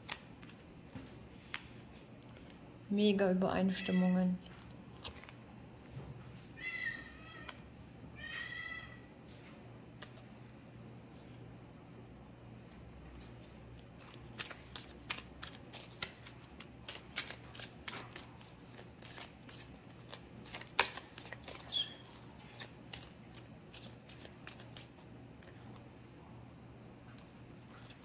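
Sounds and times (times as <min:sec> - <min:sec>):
cards being shuffled: 0:00.0 - 0:02.6, 0:04.4 - 0:05.4, 0:10.0 - 0:10.6, 0:13.1 - 0:25.6.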